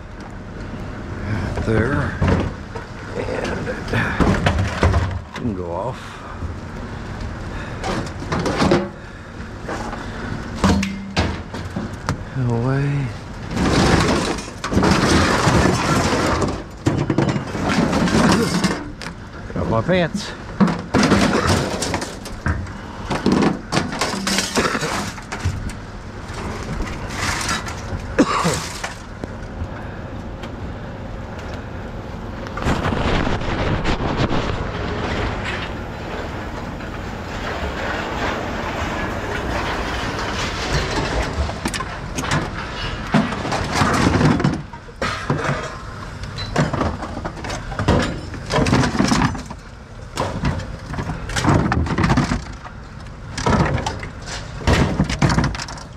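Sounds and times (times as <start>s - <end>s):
scrap metal clattering and banging: 1.2s - 6.4s, 7.6s - 29.2s, 32.6s - 55.9s
steady rushing noise: 31.8s - 41.8s.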